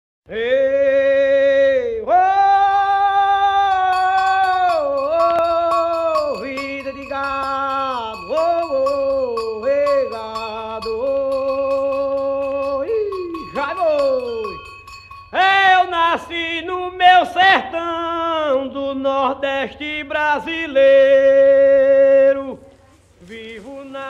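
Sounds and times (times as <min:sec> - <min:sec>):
man singing slow melody: 0:00.3 - 0:14.6, 0:15.3 - 0:22.6
light percussion beat: 0:03.7 - 0:15.8.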